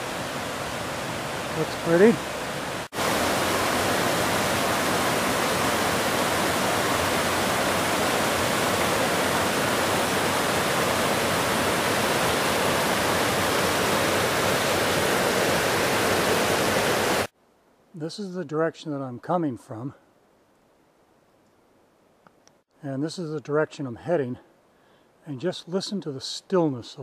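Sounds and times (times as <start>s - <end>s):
waterfall rushing over boulders: 0.0s - 17.3s.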